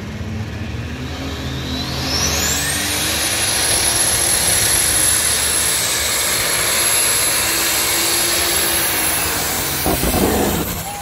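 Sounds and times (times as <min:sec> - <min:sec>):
tractor engine at full throttle: 0:00.0 - 0:11.0
steady high whine: 0:08.3 - 0:11.0.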